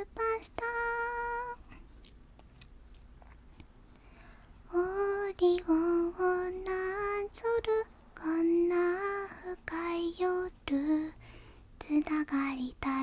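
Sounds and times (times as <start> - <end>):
woman singing softly: 0.0 - 1.8, 4.6 - 11.2, 11.8 - 13.0.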